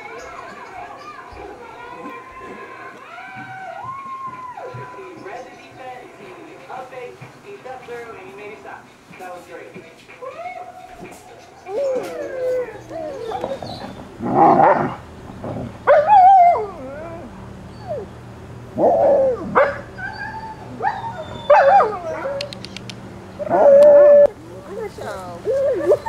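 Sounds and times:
puppies whining and yelping: 10.3 - 14.8, 15.9 - 18.2, 18.8 - 24.3, 25.4 - 26.0.

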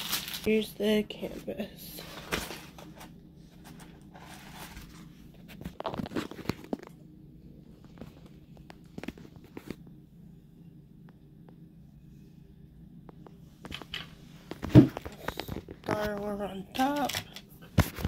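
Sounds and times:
plastic film crinkling: 0.0 - 0.5.

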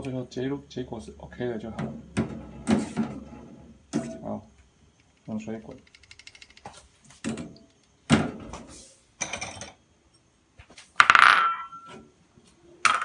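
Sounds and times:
kitchenware clattering: 9.2 - 9.8.

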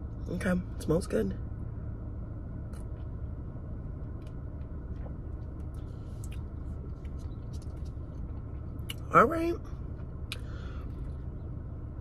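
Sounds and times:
car cabin hum: 0.0 - 12.0
wet mouth clicks: 6.2 - 6.5, 10.3 - 10.5.

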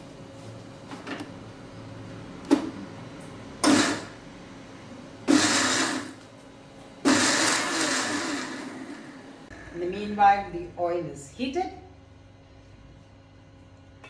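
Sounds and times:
electric mixer grinder bursts: 3.6 - 4.2, 5.3 - 6.2, 7.0 - 9.3.

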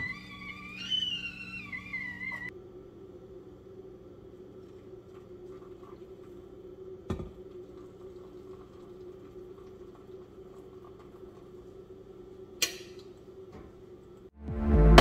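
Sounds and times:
water trickling from kettle: 4.5 - 13.4.

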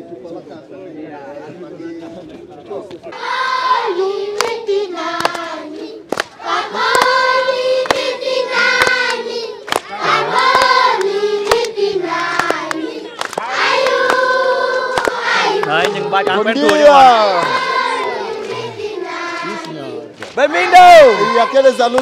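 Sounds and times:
children singing together: 3.2 - 16.0, 17.1 - 21.8
hand claps: 4.3 - 17.7, 18.4 - 18.7, 19.3 - 20.4.

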